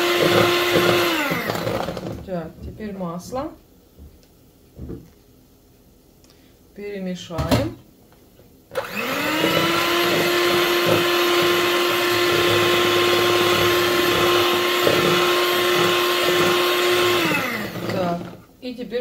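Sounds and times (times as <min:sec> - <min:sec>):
electric mixer whining: 0:00.0 - 0:02.2, 0:08.7 - 0:18.4.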